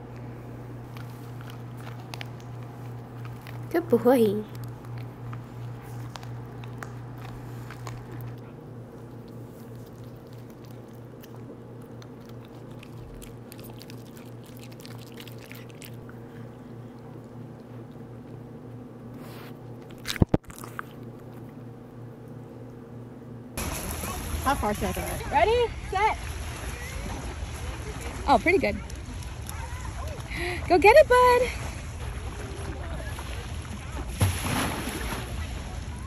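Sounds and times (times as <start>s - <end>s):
dog crunching chew treat: 0.9s - 16.3s, 19.3s - 21.6s.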